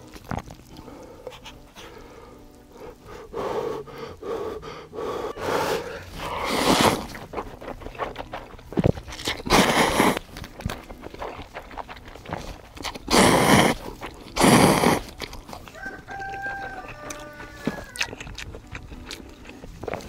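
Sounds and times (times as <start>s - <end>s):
person slurping noodles: 4.9s - 8.1s, 9.1s - 10.4s, 11.1s - 15.6s.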